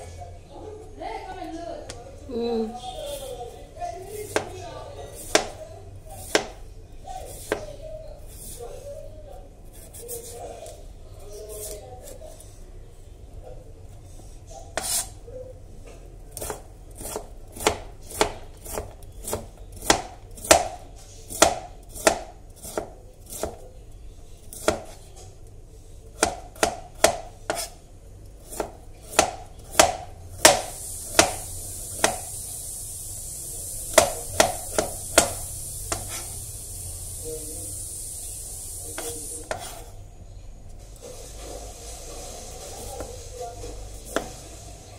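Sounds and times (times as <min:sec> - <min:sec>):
knife chopping on cutting board: 0:05.2 - 0:05.6, 0:06.2 - 0:06.6, 0:07.2 - 0:07.7, 0:14.8 - 0:15.1, 0:16.3 - 0:23.6, 0:24.5 - 0:25.0, 0:26.2 - 0:27.8, 0:28.4 - 0:31.4, 0:32.0 - 0:32.3, 0:33.9 - 0:36.3, 0:38.9 - 0:39.8, 0:44.1 - 0:44.4
steady high hiss: 0:30.2 - 0:40.0, 0:40.7 - 0:44.9.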